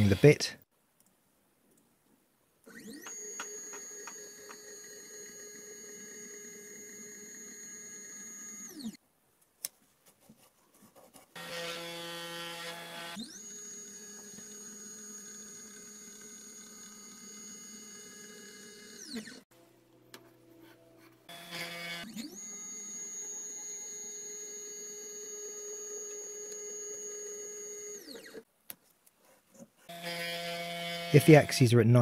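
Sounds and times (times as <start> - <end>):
spindle motor whine: 2.7 - 9.0, 11.6 - 19.4, 21.3 - 28.4
stepper motors whining: 2.7 - 9.0, 11.4 - 19.4, 21.3 - 28.4.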